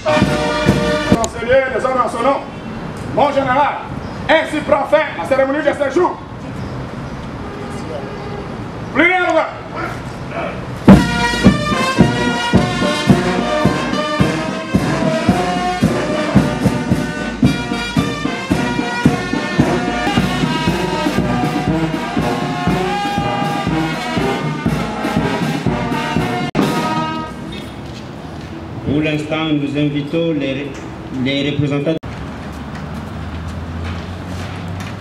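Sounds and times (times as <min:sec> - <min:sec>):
steady drum beat: 0:00.0 - 0:01.2, 0:10.9 - 0:27.4
brass band playing a march: 0:00.0 - 0:01.5, 0:10.8 - 0:27.7.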